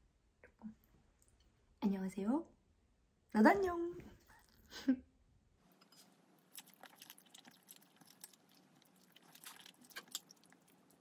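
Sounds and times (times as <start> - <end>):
person slurping and chewing noodles: 5.8 - 11.0.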